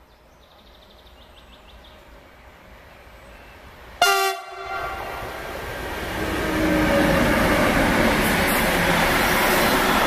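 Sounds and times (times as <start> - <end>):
freight train running noise: 0.5 - 10.0
locomotive horn blast: 4.0 - 5.2.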